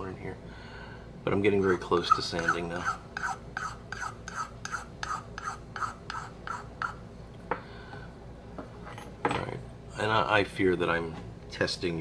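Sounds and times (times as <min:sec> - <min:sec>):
metal file rasping on wood: 0:01.5 - 0:07.0.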